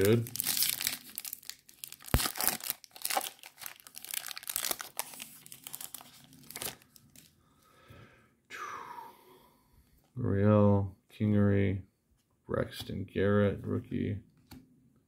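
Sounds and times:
plastic wrapper tearing and crinkling: 0.0s - 7.3s.

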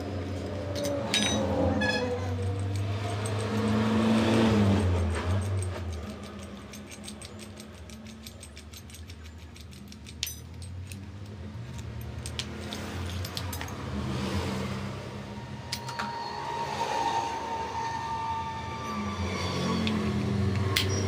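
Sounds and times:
metal parts clinking: 0.4s - 14.1s, 15.7s - 16.3s, 19.8s - 21.0s.

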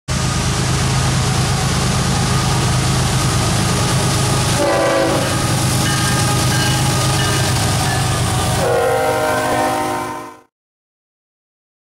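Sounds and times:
diesel locomotive engine rumble: 0.1s - 10.5s
train rushing past: 0.1s - 10.5s
train air horn: 4.6s - 7.5s, 8.2s - 10.5s.

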